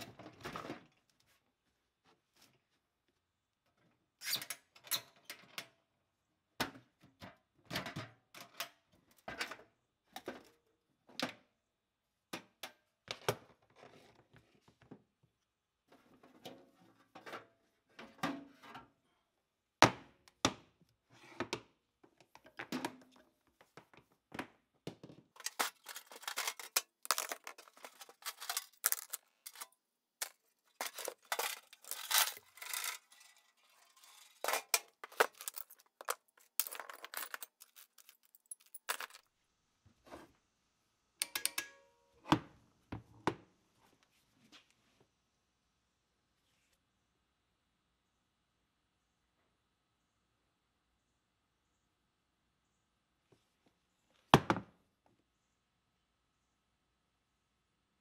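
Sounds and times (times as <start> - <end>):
steel bits clinking and rattling: 25.4 - 39.2.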